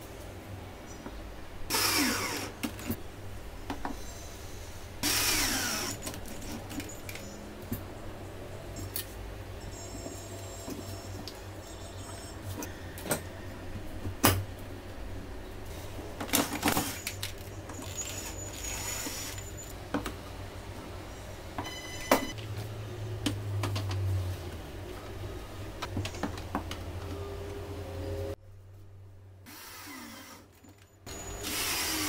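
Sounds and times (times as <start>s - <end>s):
knocks and clicks of handling: 25.8s - 27.2s.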